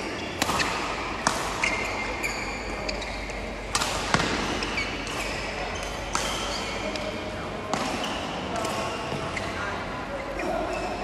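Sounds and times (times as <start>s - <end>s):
shoes squeaking on court: 0.0s - 7.1s, 8.0s - 11.0s
racket hitting shuttlecock: 0.3s - 2.4s, 3.3s - 9.5s.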